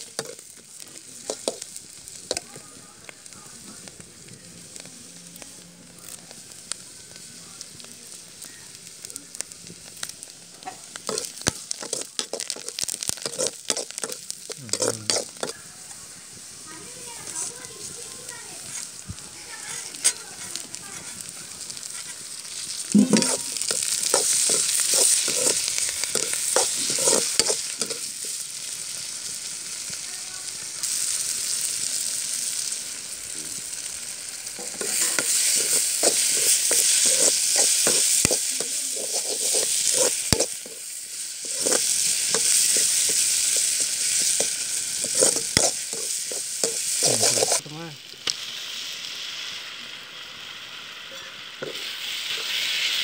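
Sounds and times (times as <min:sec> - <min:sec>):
vegetables sizzling in hot oil: 0:00.0 - 0:53.0
steel spatula scraping a pan: 0:00.1 - 0:00.4, 0:01.3 - 0:01.6, 0:11.0 - 0:15.6, 0:19.6 - 0:28.4, 0:34.6 - 0:47.6.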